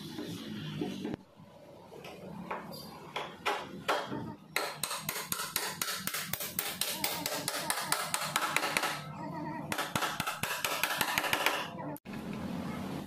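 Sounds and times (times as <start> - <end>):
hammer striking metal: 3.2 - 9.0, 9.7 - 11.7.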